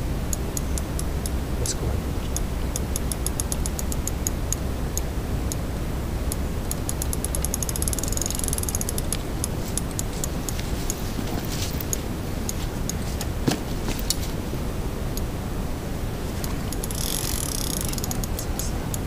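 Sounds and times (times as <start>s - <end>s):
steady low rumble: 0.0s - 19.0s
fishing reel clicking: 2.8s - 4.4s, 6.7s - 10.6s, 16.4s - 19.0s.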